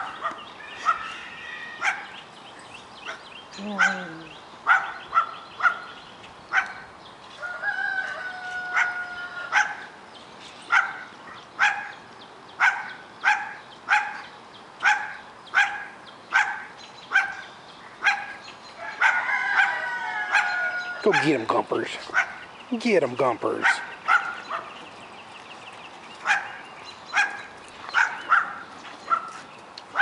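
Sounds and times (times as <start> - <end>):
dog barking: 0.0 - 1.1, 1.8 - 2.1, 3.8 - 4.0, 4.7 - 5.9, 6.5 - 6.9, 8.7 - 9.9, 10.7 - 12.0, 12.6 - 17.4, 18.0 - 21.3, 22.1 - 22.4, 23.6 - 24.8, 26.2 - 29.4
dog high steady call: 0.0 - 1.2, 3.1 - 6.9, 8.7 - 9.9, 10.7 - 12.0, 12.6 - 17.4, 18.0 - 21.4, 23.6 - 24.8, 26.2 - 29.4.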